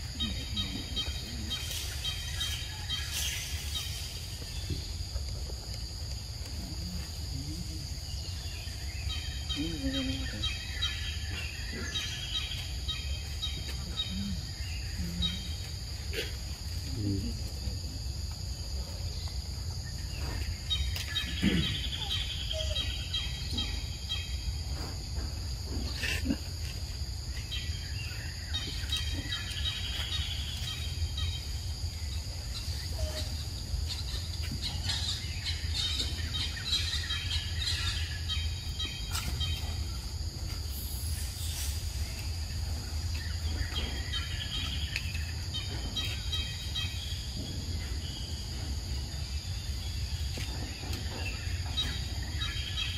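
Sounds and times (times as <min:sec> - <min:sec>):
birds chirping: 0:00.0 - 0:52.9
high insect drone: 0:00.0 - 0:52.9.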